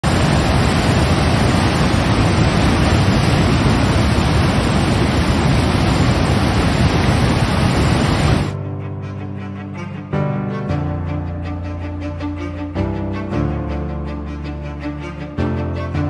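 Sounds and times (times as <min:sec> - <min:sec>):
bowed-string music: 0:08.5 - 0:16.0.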